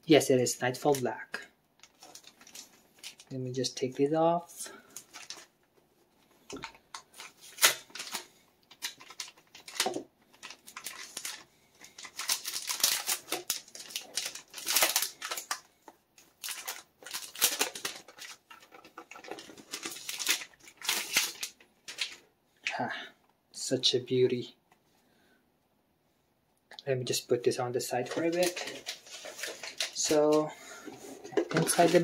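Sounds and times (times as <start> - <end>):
plastic film crinkling: 1.8 - 3.4, 4.6 - 5.7, 6.4 - 22.2, 28.0 - 32.0.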